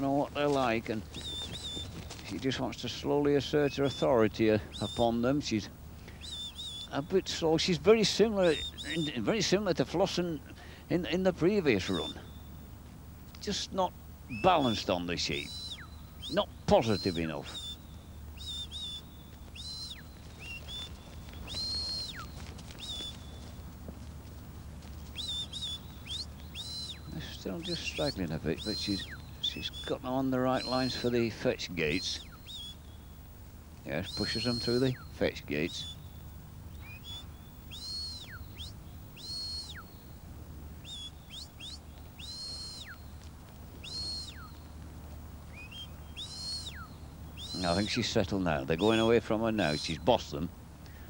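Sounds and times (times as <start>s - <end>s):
short whistle chirps: 18.4s - 20.9s, 21.5s - 23.1s, 25.2s - 27.0s, 36.8s - 40.0s, 40.8s - 43.0s, 43.8s - 44.5s, 45.6s - 47.7s
high sliding whistles: 18.4s - 23.2s, 25.2s - 29.9s, 36.8s - 39.9s, 40.8s - 43.0s, 43.8s - 44.5s, 45.5s - 47.8s
person whistling commands: 34.0s - 35.0s.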